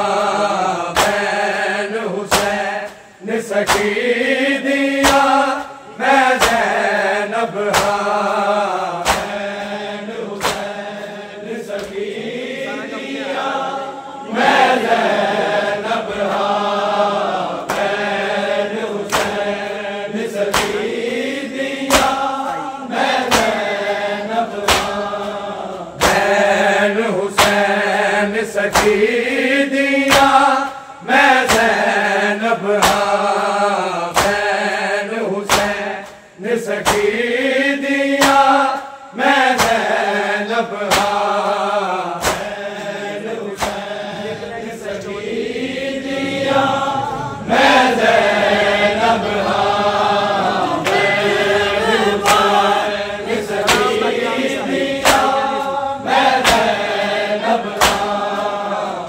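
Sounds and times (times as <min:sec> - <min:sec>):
men chanting in unison: 0:00.0 - 0:59.0
hands striking chests: 0:40.9 - 0:41.3, 0:42.2 - 0:42.6, 0:43.6 - 0:43.9, 0:53.5 - 0:55.6, 0:57.8 - 0:58.1.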